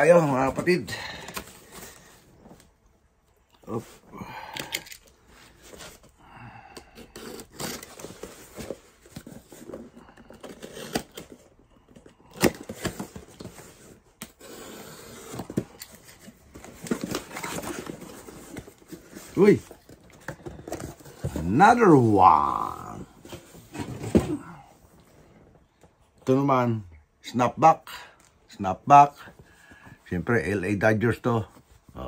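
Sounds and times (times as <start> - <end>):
tape and cardboard tearing: 7.0 - 8.2, 10.4 - 11.5
box cutter slitting tape: 7.1 - 8.0.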